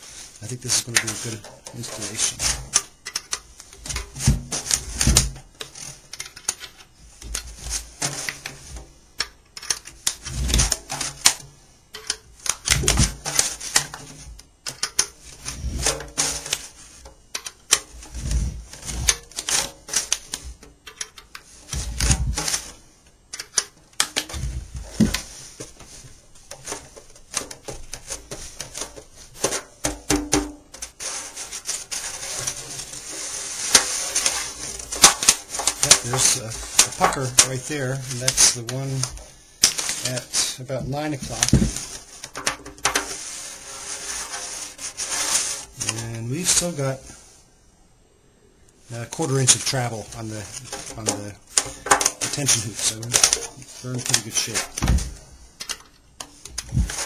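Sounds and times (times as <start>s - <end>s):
dull handling bumps: 31.9s - 43.4s.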